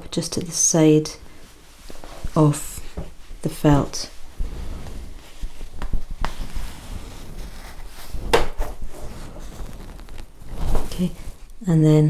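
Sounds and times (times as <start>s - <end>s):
fabric rustling: 1.2s - 11.6s
thread pulled through felt: 1.7s - 11.6s.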